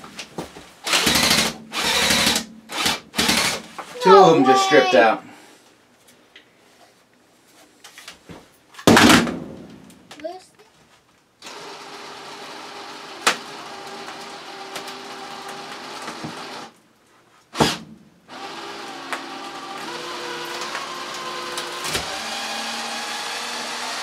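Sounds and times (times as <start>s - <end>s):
cordless drill running: 0.8s - 3.6s, 11.4s - 16.7s, 18.3s - 24.0s.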